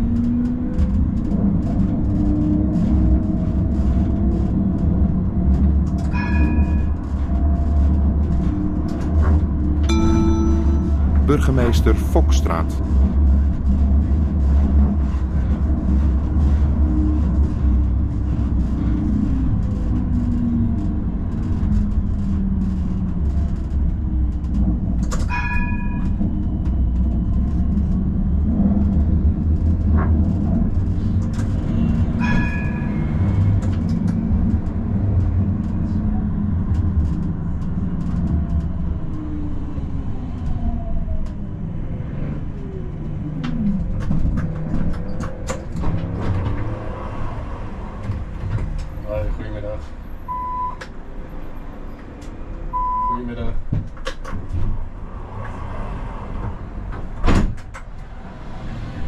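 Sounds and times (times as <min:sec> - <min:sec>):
tram wheels rumbling on rails: 0:00.0 - 0:59.0
tram bell ring: 0:09.9 - 0:12.8.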